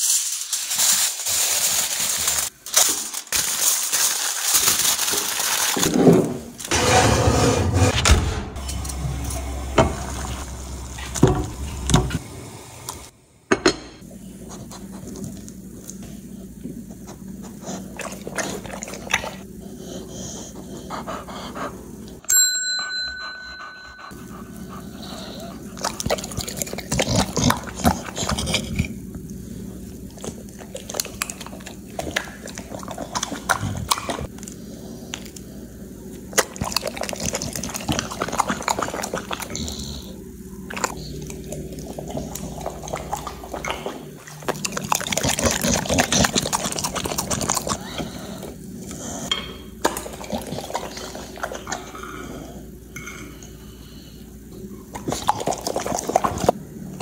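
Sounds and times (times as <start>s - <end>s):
short bell-like ding: 22.3s - 24.1s.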